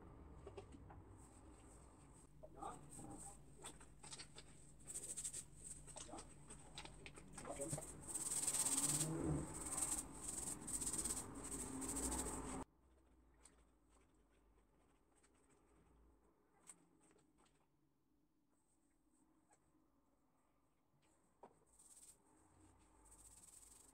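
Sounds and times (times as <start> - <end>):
fingers scratching through hair: 2.7 - 12.6.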